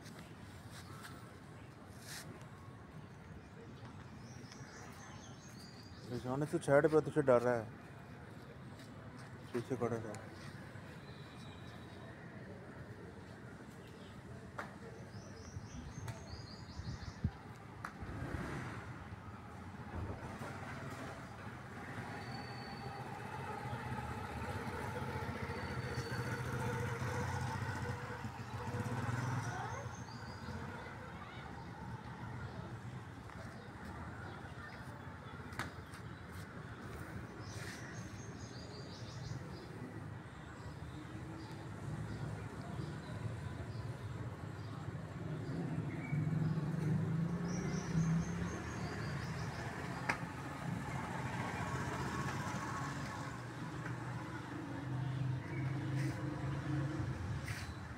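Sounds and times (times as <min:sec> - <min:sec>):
vehicle engine idling: 0:23.0 - 0:33.0.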